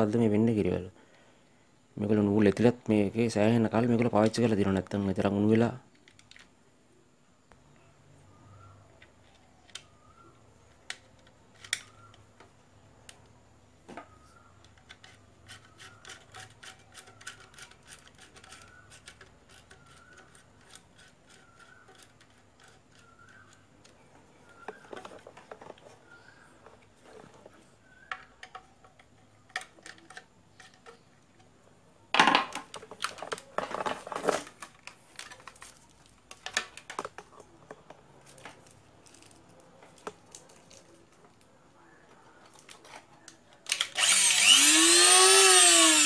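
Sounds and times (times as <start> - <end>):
faint clicks and scrapes: 14.1 - 31.6, 32.7 - 43.8.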